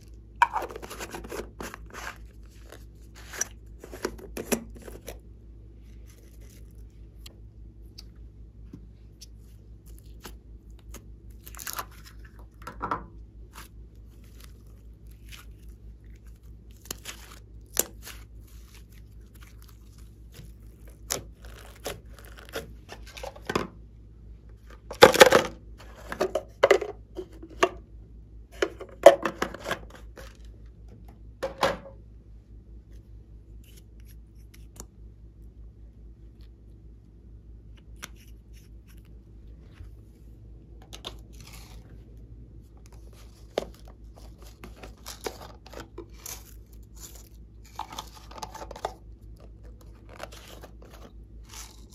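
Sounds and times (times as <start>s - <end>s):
hands handling slime and clay: 0.0s - 25.0s, 36.1s - 51.9s
faint low hum: 0.0s - 51.9s.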